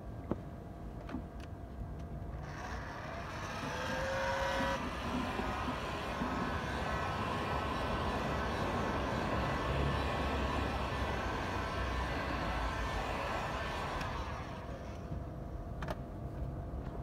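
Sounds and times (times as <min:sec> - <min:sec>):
heat gun fan blowing: 0:02.4 - 0:15.4.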